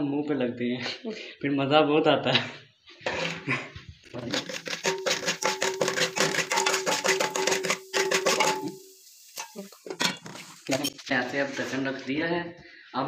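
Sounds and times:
popcorn kernels rattling in pot: 4.1s - 10.8s.

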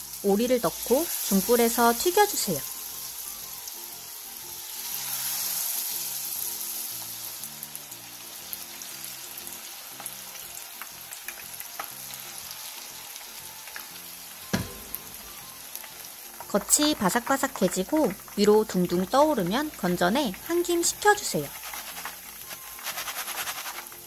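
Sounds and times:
food deep-frying in oil: 0.0s - 24.0s
dull knock: 14.5s - 15.2s.

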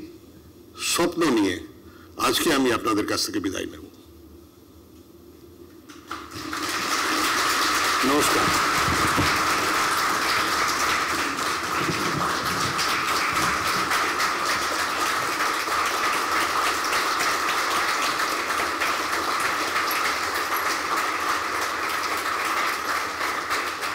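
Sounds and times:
audience applauding: 6.0s - 23.9s.

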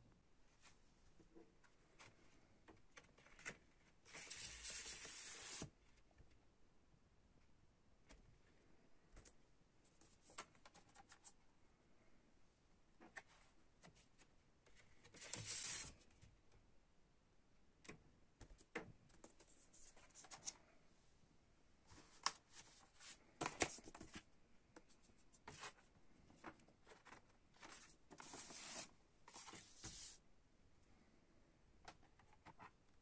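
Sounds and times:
paper and card rustling: 2.9s - 5.7s, 15.0s - 15.9s, 22.0s - 24.3s, 25.4s - 30.2s.

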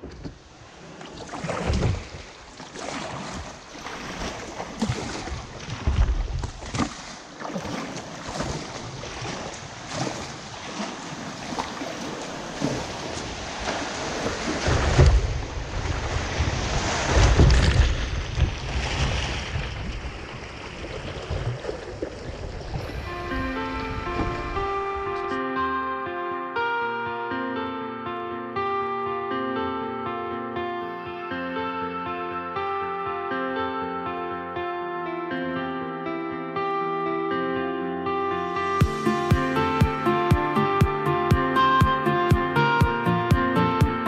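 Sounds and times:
water rushing and splashing: 0.3s - 25.3s
wind buffeting microphone: 3.4s - 6.8s, 12.0s - 25.4s.

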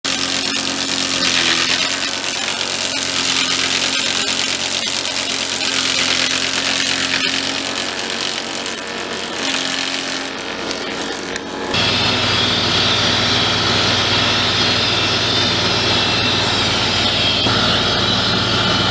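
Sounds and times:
tractor and hydraulics humming: 0.0s - 18.9s
log shaving hiss: 0.2s - 11.8s.

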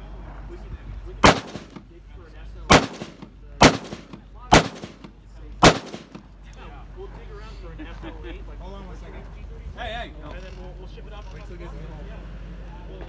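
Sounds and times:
rifle shots: 1.2s - 1.8s, 2.7s - 6.2s.

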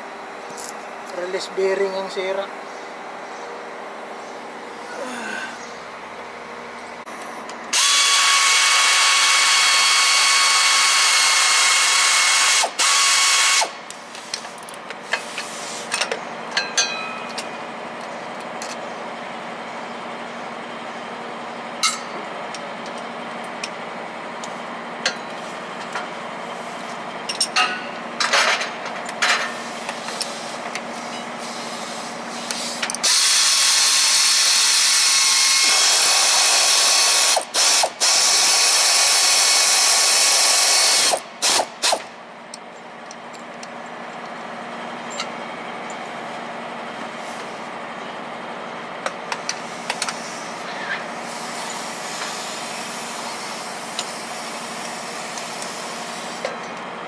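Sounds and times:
air hissing from a line: 12.4s - 16.0s, 29.5s - 42.0s, 49.6s - 56.5s.

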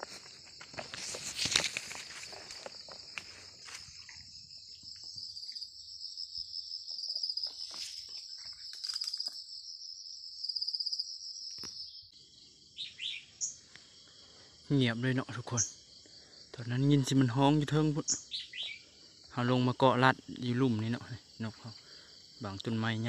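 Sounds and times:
footsteps rustling through dry brush: 0.0s - 4.5s, 7.4s - 9.2s
insects chirring: 0.0s - 23.0s.

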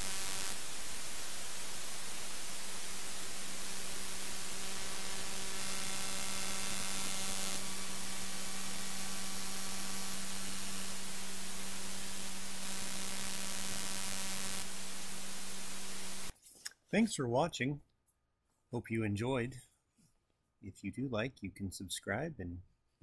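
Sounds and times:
buzzing stack of tones: 0.0s - 16.3s
low hum: 0.0s - 16.3s
static hiss: 0.0s - 16.4s.

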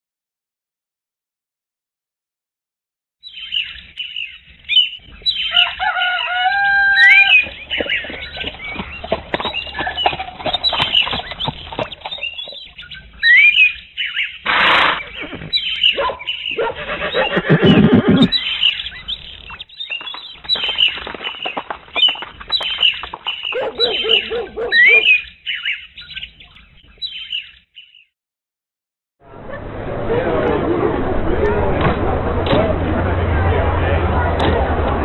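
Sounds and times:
birds chirping: 3.2s - 28.1s
cockerel crowing: 5.4s - 7.7s.

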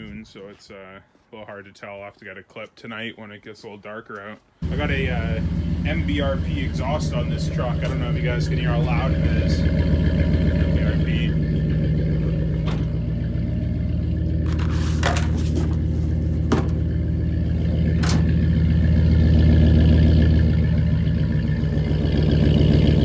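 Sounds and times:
deep truck exhaust idling: 4.6s - 23.0s.

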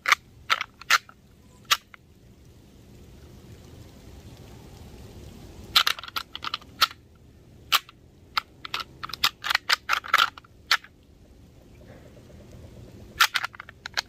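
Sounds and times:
antlers rattling clacks: 11.8s - 14.0s.

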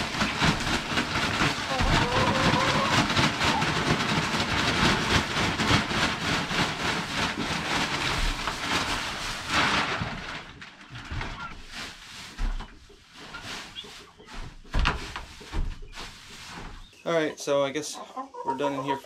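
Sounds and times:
wood shavings pouring onto floor: 0.0s - 12.6s
plastic bag rustling: 0.0s - 17.0s.

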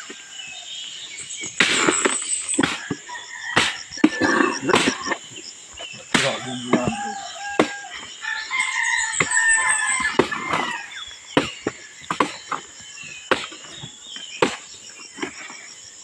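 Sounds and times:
machete chopping wood: 1.6s - 3.0s, 3.6s - 5.1s, 6.1s - 7.8s, 10.0s - 10.7s, 11.4s - 13.8s, 14.4s - 14.7s
rooster crowing: 6.2s - 10.9s.

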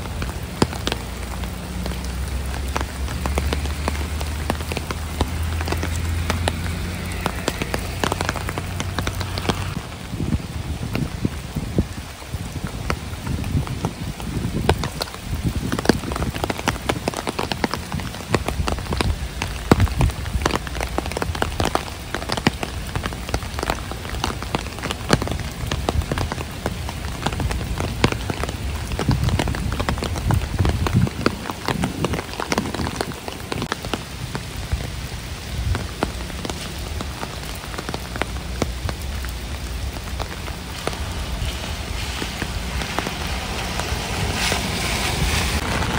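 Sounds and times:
heavy rain: 0.0s - 45.9s
raindrops tapping near microphone: 0.0s - 45.9s
low rumble: 38.8s - 45.9s.

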